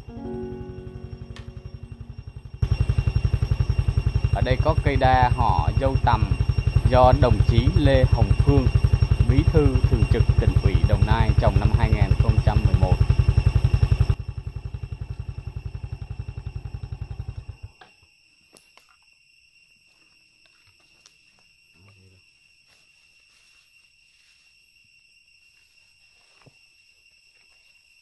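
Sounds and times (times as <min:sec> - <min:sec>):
high-pitched insect whine: 0:00.0 - 0:28.0
motorcycle engine idling: 0:00.7 - 0:17.7.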